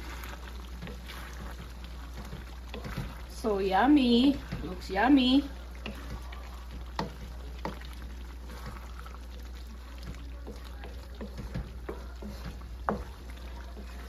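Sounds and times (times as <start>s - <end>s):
sauce simmering: 0.0s - 14.0s
wooden spatula stirring stew: 0.0s - 14.0s
spatula knocking against pan: 5.8s - 8.0s, 10.0s - 14.0s.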